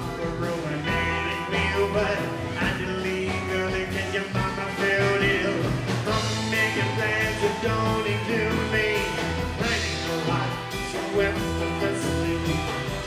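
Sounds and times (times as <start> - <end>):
drums: 0.0 - 13.0
electric guitar: 0.0 - 13.0.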